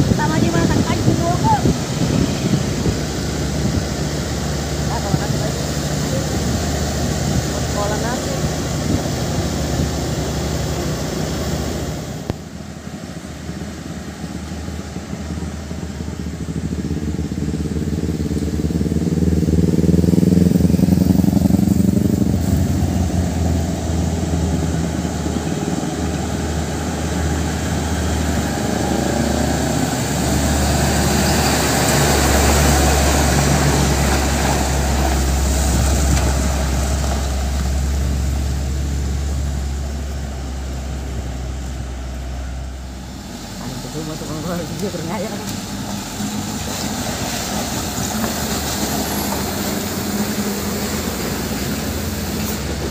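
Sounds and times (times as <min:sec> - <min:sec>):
passing engine: 0:00.0 - 0:52.9
truck diesel engine: 0:00.0 - 0:52.9.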